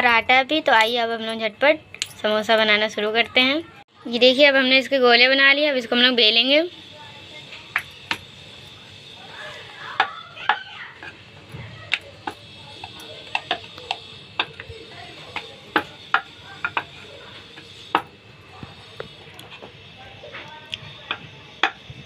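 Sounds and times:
hands working dough on wooden board: 9.9 - 20.4.

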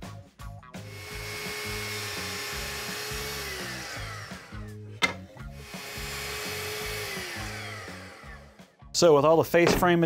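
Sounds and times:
background music with steady beat: 0.0 - 10.0
miter saw motor: 0.9 - 4.8, 5.5 - 8.6.

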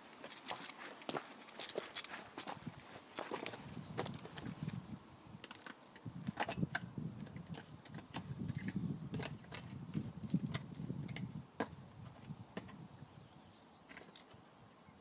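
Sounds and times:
metallic clinks and scrapes: 0.0 - 2.4.

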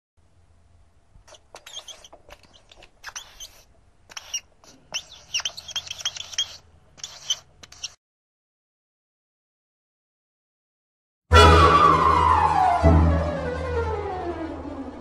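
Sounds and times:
marker pen squeaking on surface: 1.2 - 8.0.

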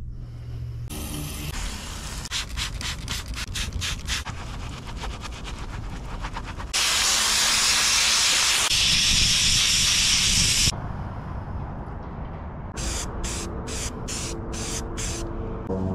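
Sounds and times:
brush scrubbing filter: 2.4 - 6.8
hose water spray hissing: 6.7 - 10.7.

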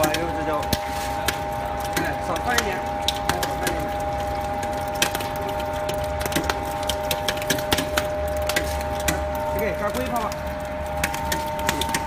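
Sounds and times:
material cracking in press: 0.0 - 12.0.

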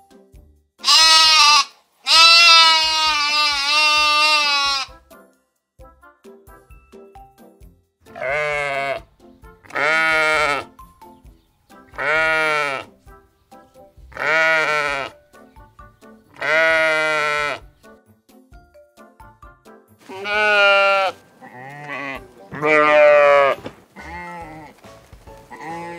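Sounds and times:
soft background music: 0.0 - 1.4, 2.1 - 25.9
sheep bleating: 0.8 - 5.0, 8.1 - 9.1, 9.7 - 10.7, 12.0 - 12.9, 14.1 - 15.2, 16.3 - 17.7, 20.0 - 24.8, 25.5 - 25.9.

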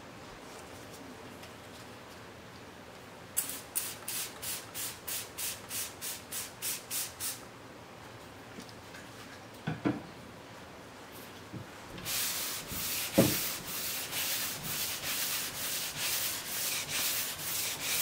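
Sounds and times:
spray bottle hissing sprays: 3.4 - 7.4.

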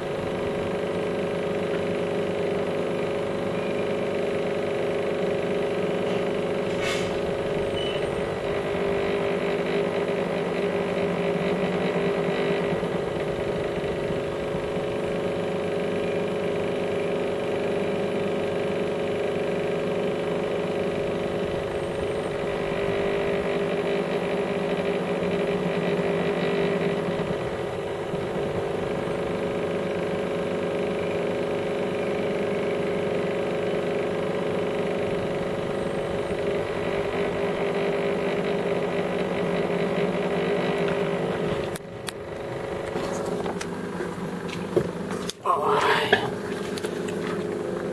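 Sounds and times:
machine hum: 20.4 - 47.9.

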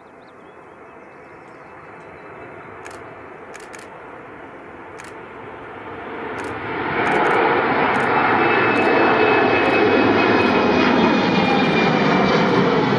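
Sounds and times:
jet airliner climbing overhead: 0.0 - 12.9.

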